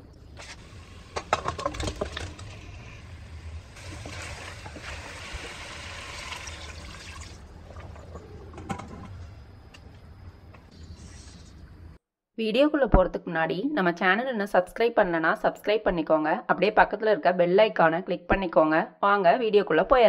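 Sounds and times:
wet hiss of frying: 2.5 - 7.4.

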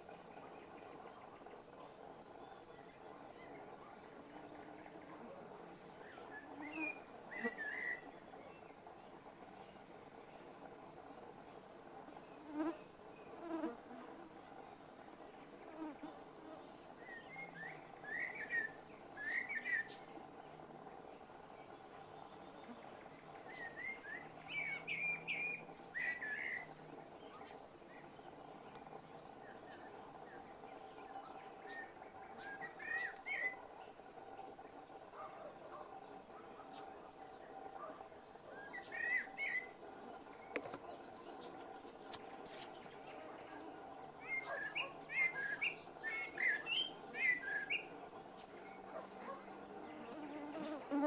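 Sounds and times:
blackbird singing: 6.0 - 8.7, 17.0 - 20.0, 23.5 - 27.5, 31.2 - 33.6, 38.6 - 39.8, 44.2 - 48.5.

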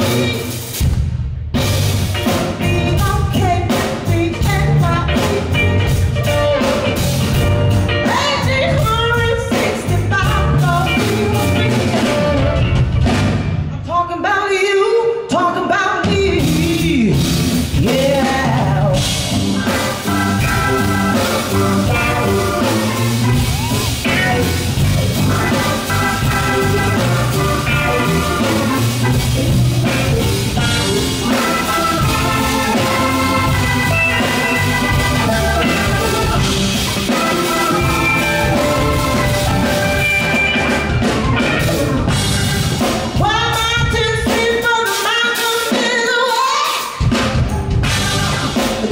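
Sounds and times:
drum kit: 0.0 - 13.9, 16.0 - 48.9
bass: 0.0 - 48.9
electric guitar: 1.6 - 13.8, 16.1 - 44.4
organ: 19.6 - 43.1.

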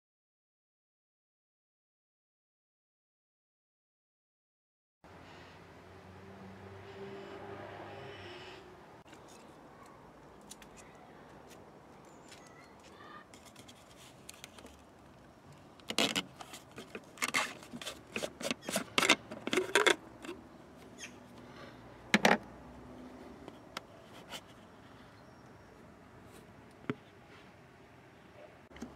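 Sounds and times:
plastic cap clicking and scraping: 12.3 - 14.8, 15.8 - 20.4.

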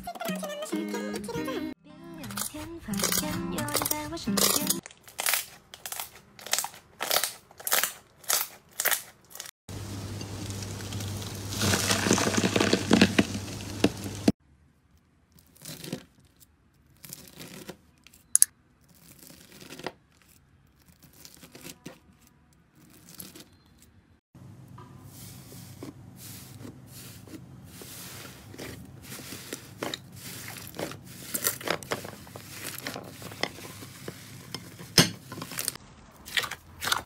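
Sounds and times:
hands squeezing slime: 10.9 - 14.1
blade slicing crunchy slime: 34.9 - 37.0.

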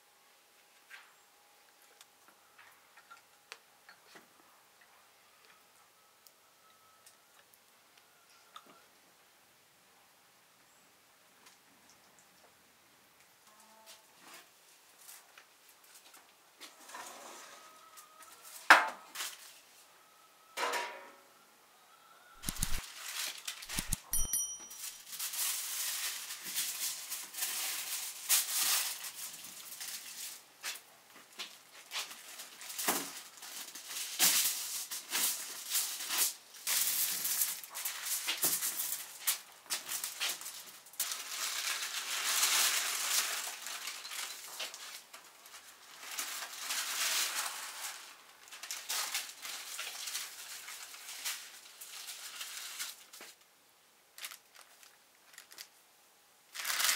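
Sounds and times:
foil and paper crinkling: 22.4 - 53.5, 54.1 - 55.7, 56.5 - 56.9.

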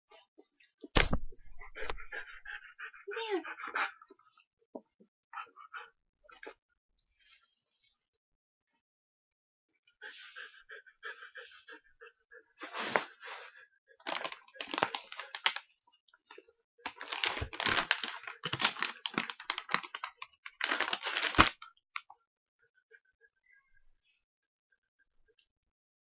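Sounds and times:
plastic cups scraping and clacking: 14.1 - 15.6, 16.9 - 21.5.

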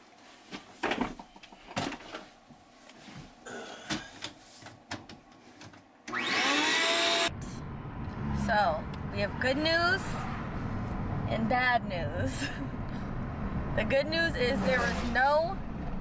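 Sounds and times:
handling knocks and clicks: 3.9 - 5.9
shop vacuum motor whine: 6.1 - 7.3.

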